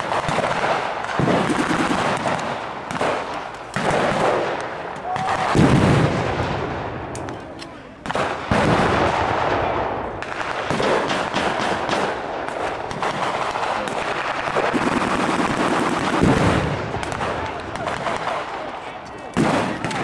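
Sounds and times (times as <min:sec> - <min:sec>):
rifles and machine guns firing: 0:00.0 - 0:20.0.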